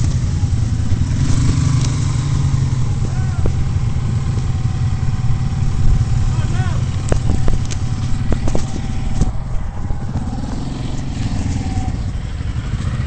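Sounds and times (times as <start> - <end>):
quad bike engine running: 0.0 - 13.0.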